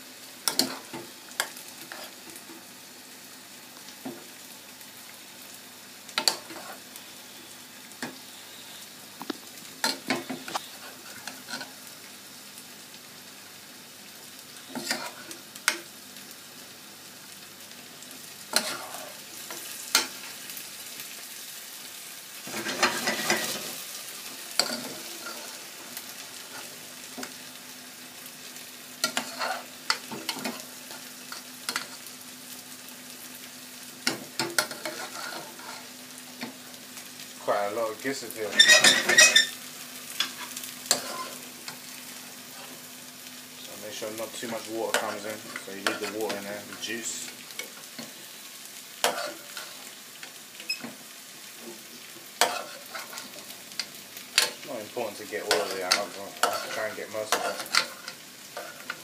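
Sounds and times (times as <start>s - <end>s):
sauce sizzling in frying pan: 0.0s - 59.0s
metal spoon scraping saucepan: 38.5s - 39.5s.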